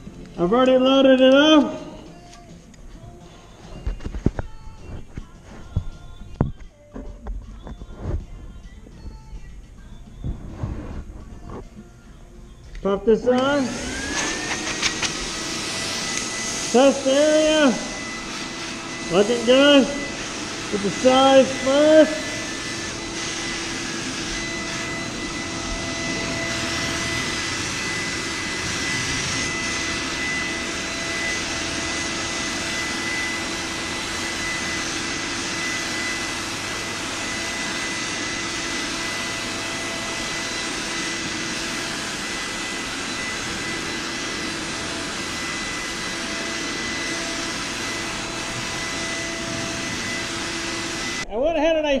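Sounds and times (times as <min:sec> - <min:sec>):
constant whine: 0:12.7 - 0:51.3
paint sprayer hissing: 0:13.4 - 0:51.2.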